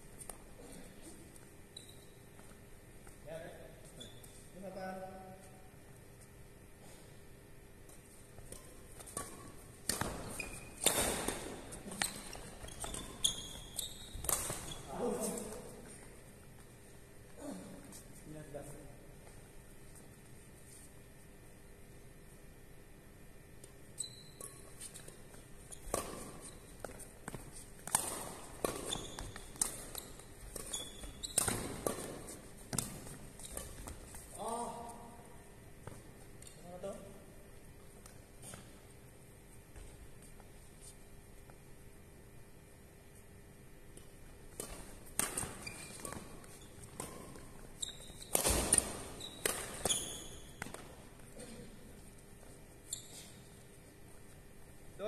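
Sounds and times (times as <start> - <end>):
shoes squeaking on floor: 0.2 - 2.6, 3.7 - 4.6, 8.4 - 16.6, 23.9 - 35.2, 45.2 - 51.6, 52.3 - 54.0
rackets hitting shuttlecock: 8.4 - 13.0, 13.6 - 15.6, 25.8 - 34.2, 43.9 - 51.2.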